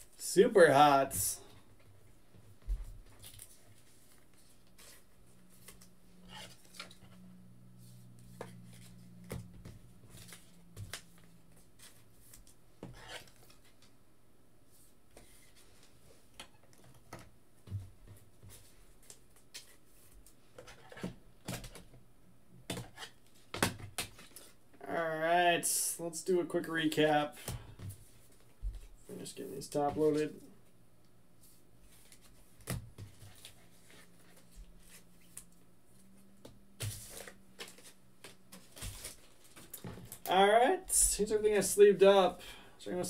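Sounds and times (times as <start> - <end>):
trading cards being handled: 3.0 - 7.2, 31.4 - 40.3.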